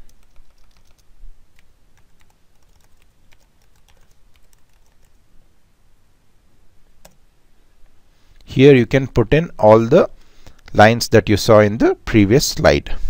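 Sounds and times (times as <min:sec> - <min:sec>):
faint computer keyboard typing: 0:00.0 - 0:05.2, 0:07.0 - 0:07.2.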